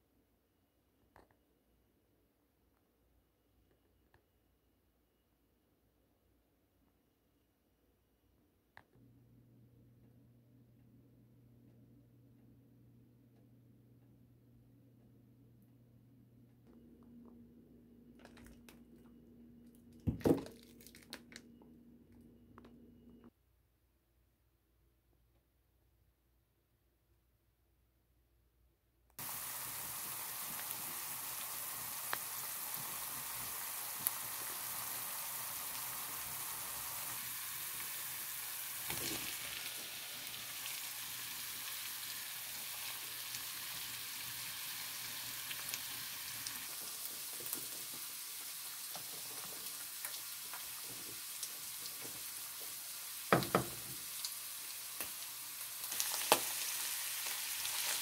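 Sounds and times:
vegetables sizzling in frying pan: 29.2s - 58.0s.

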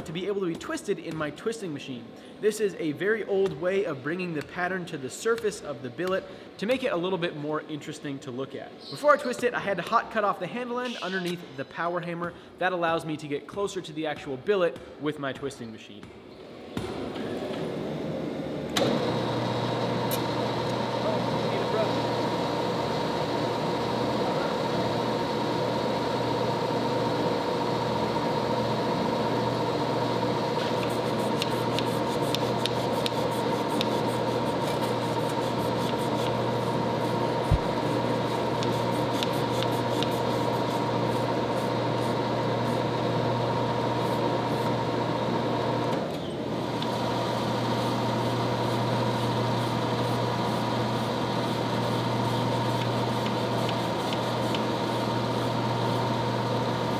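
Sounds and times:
shop machinery droning: 16.4s - 56.9s.

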